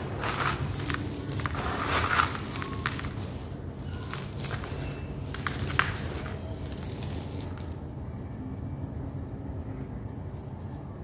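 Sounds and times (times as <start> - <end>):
hands crumbling dry clumps: 0.0 - 8.0.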